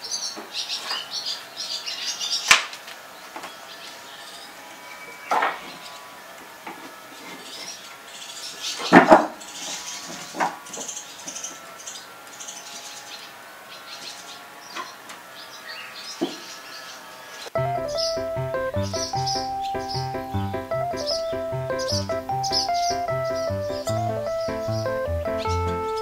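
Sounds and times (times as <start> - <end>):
swallows twittering: 10.7 - 26.0.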